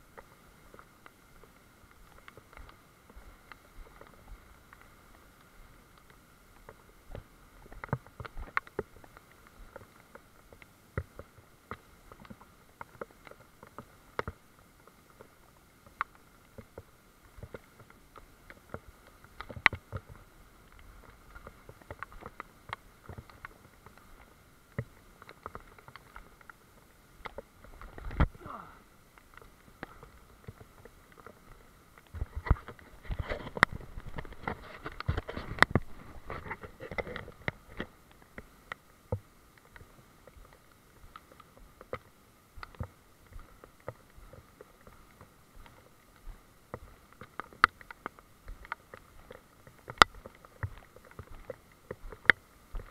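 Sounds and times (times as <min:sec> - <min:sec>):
faint steady hiss: 0:00.0 - 0:52.9
footfalls on wet ground: 0:27.2 - 0:38.5.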